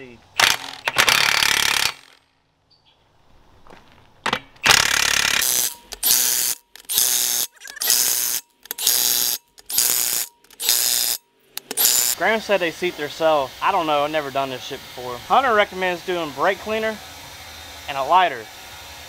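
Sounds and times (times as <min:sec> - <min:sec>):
impact wrench bursts: 0:00.4 - 0:02.2, 0:04.6 - 0:14.3.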